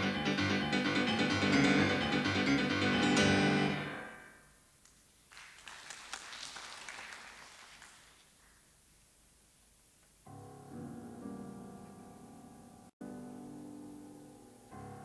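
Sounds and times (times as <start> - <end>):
faint noise with small clicks: 4.8 - 6.2, 7.8 - 10.3.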